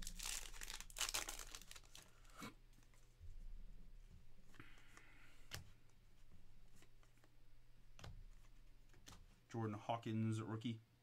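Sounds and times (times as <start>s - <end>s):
wrapper tearing and crinkling: 0.0s - 2.3s.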